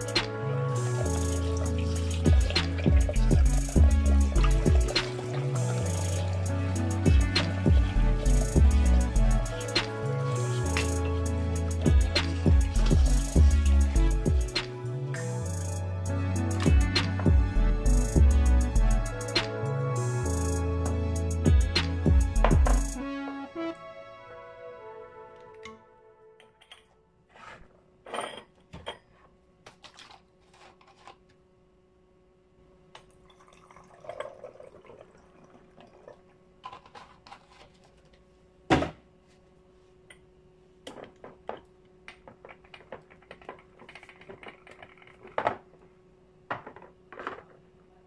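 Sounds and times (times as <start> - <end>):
faint steady hum: 0.0 - 48.0.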